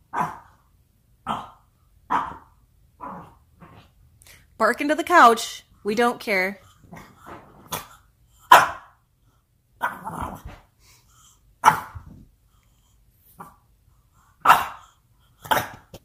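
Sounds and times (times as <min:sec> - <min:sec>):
dog barking: 0:01.3 - 0:02.5, 0:08.5 - 0:09.0, 0:14.4 - 0:14.9.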